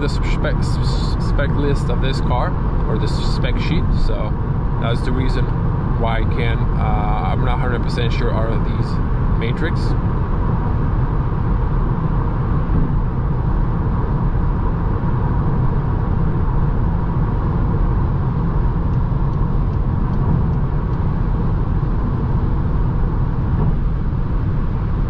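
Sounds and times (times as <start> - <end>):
tyre and wind noise in car cabin: 7.4 - 25.0.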